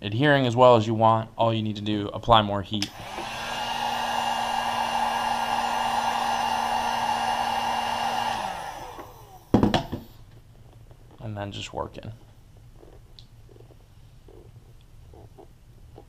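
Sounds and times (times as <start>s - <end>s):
heat gun fan whine: 2.8s - 10.3s.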